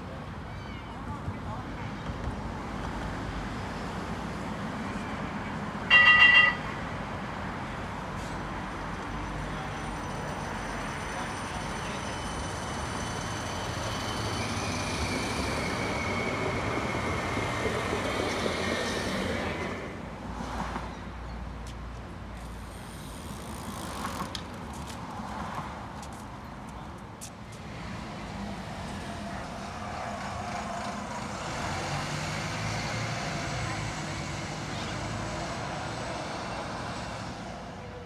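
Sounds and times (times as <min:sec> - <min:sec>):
street ambience: 0:00.0 - 0:38.0
tram rumbling with electric whine: 0:09.0 - 0:20.1, 0:27.7 - 0:37.7.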